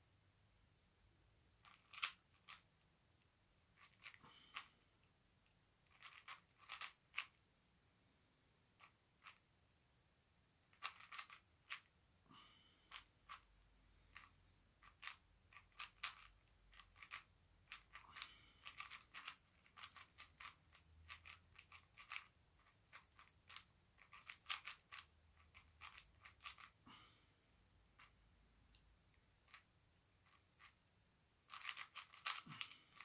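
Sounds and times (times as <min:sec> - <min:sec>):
puzzle cube clicking as turned: 0:01.6 - 0:02.6, 0:03.8 - 0:04.7, 0:05.9 - 0:07.4, 0:10.7 - 0:11.9, 0:14.1 - 0:26.8, 0:31.5 - 0:33.0.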